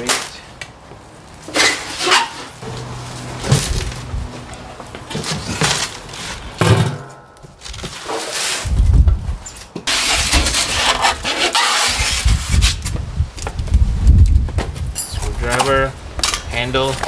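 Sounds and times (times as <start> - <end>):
cardboard scraping and rustling: 1.5 - 6.9, 7.6 - 13.0
metal drum bumping: 6.6 - 7.6.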